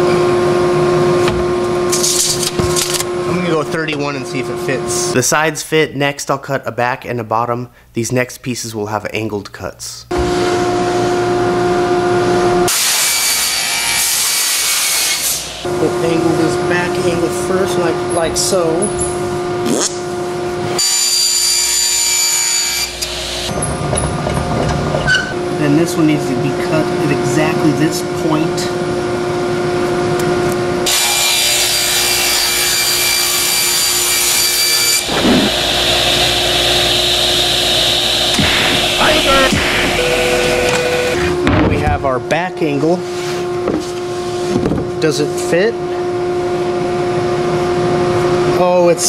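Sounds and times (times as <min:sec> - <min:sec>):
table saw whining: 0:10.2 - 0:19.1, 0:20.7 - 0:24.0, 0:30.8 - 0:41.5
saw cutting through board: 0:12.7 - 0:15.6, 0:20.8 - 0:23.5, 0:30.9 - 0:41.2.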